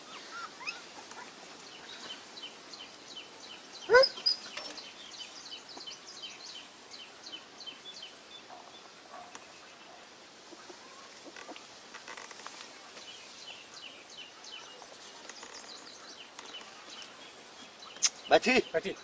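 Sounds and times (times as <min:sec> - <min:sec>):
small birds chirping: 0:00.0 - 0:19.0
puppy yelp: 0:03.9 - 0:04.4
faint puppy squeaks: 0:03.9 - 0:04.5.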